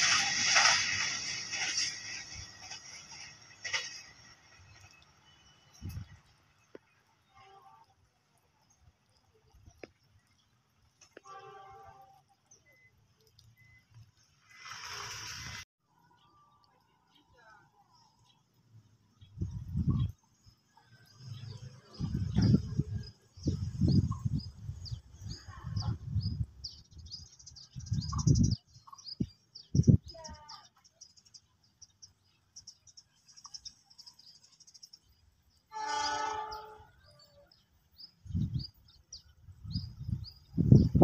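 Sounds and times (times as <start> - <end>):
small birds chirping: 16.1 - 41.0
wind buffeting microphone: 19.2 - 20.2, 21.3 - 30.4, 38.2 - 41.0.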